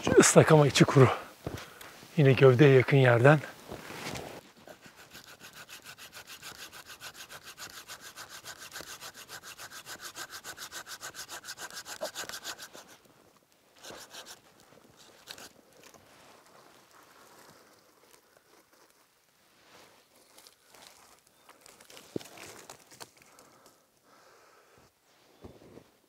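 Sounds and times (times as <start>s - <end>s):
hand saw cutting branch: 4.6s - 13.1s, 13.8s - 15.6s.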